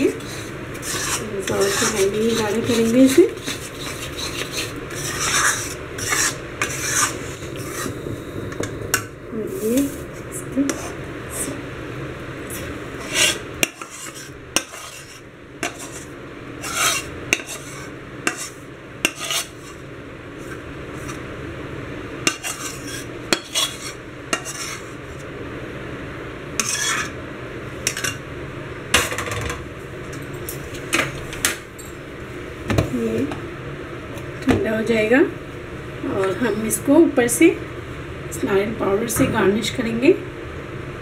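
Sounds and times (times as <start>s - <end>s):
metal spatula scraping steel pan: 0.0s - 8.0s, 12.5s - 19.8s, 22.3s - 25.0s, 26.6s - 27.2s.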